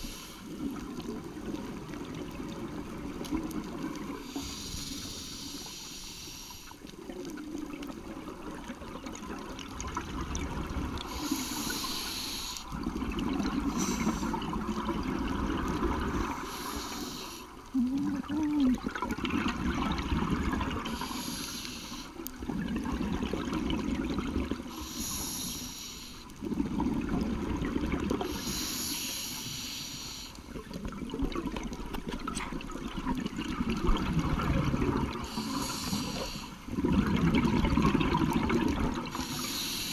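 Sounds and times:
regulator inhale hiss: 0:00.0 - 0:00.6, 0:04.2 - 0:06.9, 0:11.0 - 0:12.8, 0:13.6 - 0:14.4, 0:16.1 - 0:17.7, 0:20.8 - 0:22.3, 0:24.6 - 0:26.4, 0:28.2 - 0:30.5, 0:35.2 - 0:36.7, 0:39.1 - 0:39.9
exhaled air bubbling underwater: 0:00.0 - 0:39.9.

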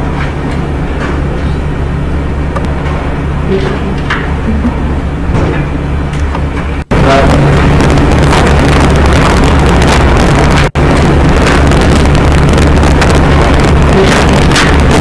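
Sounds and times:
low hum: 0:00.0 - 0:15.0
loud rushing noise: 0:06.7 - 0:15.0.

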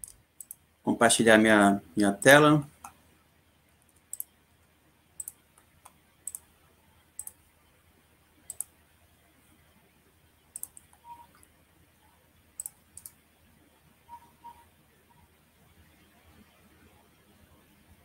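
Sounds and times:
computer mouse clicking: 0:00.0 - 0:00.6, 0:03.8 - 0:04.3, 0:05.2 - 0:06.5, 0:07.2 - 0:07.4, 0:08.5 - 0:08.8, 0:10.5 - 0:11.5, 0:12.6 - 0:13.2.

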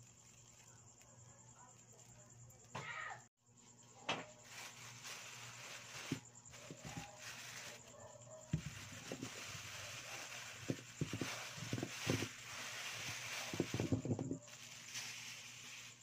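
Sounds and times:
faint hiss: 0:08.6 - 0:16.0.

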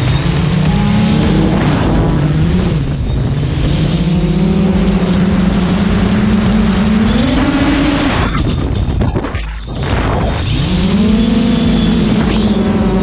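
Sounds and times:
quadcopter motors droning: 0:09.7 - 0:13.0.

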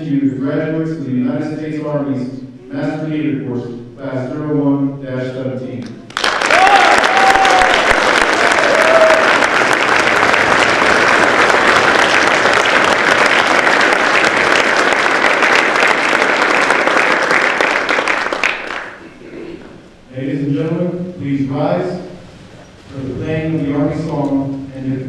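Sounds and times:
cheers: 0:06.1 - 0:10.8
audience applauding: 0:06.1 - 0:19.0.

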